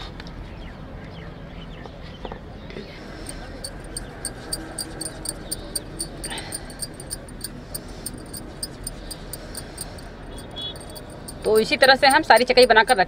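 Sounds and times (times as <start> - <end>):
insect chirping: 3.3 - 13.0.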